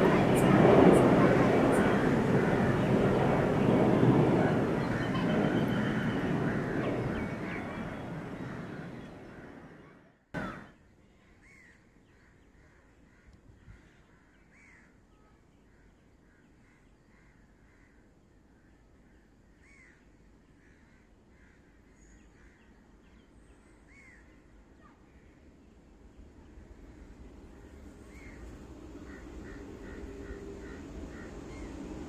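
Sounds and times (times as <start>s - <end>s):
crows cawing: 4.4s - 10.7s, 29.0s - 31.8s.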